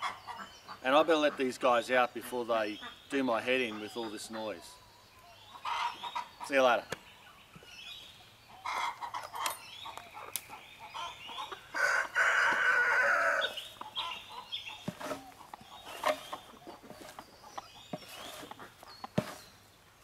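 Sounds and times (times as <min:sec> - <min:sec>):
chickens clucking and squawking: 0:00.0 - 0:19.9
rooster crowing: 0:11.7 - 0:13.6.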